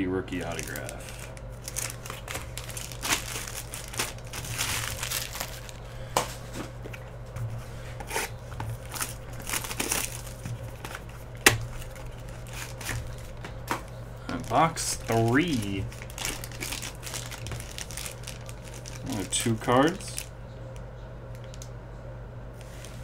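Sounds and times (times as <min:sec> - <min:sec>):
wrapper crinkling and tearing: 0:00.4 - 0:06.0, 0:08.1 - 0:20.3.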